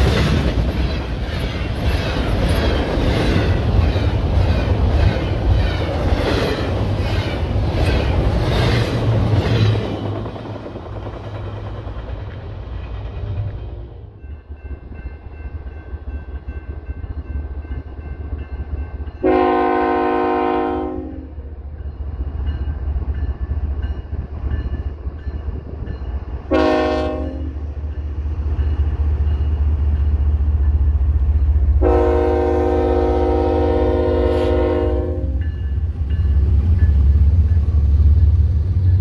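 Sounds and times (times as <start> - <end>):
locomotive air horn blasts: 19.2 - 21.3, 26.5 - 27.6, 31.8 - 35.4.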